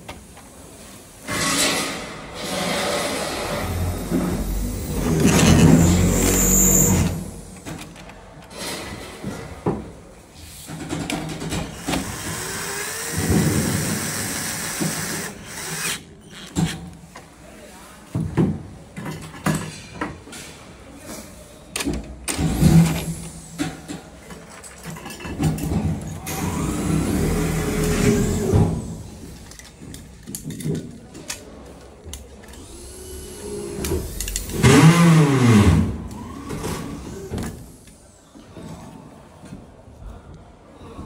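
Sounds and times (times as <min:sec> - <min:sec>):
cordless drill driving screws: 0:03.6 - 0:07.2, 0:11.8 - 0:16.5.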